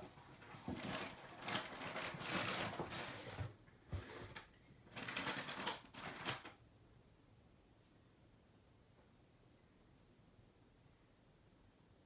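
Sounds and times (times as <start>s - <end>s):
parcel rustling and crinkling: 0.0s - 3.4s.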